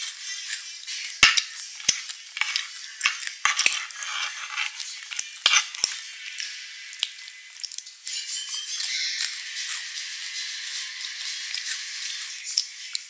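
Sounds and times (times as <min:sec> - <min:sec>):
metal spoon scraping bamboo tray: 0:01.2 - 0:06.0.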